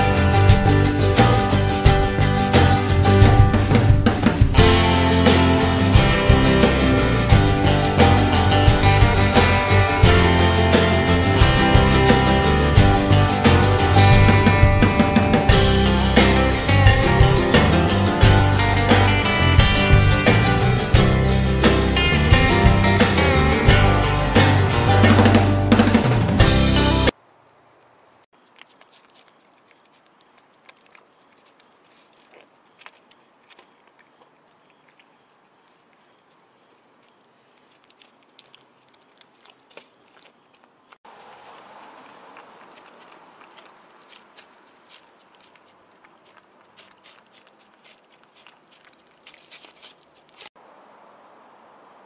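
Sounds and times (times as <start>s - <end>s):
kitten chewing food: 28.3s - 50.6s.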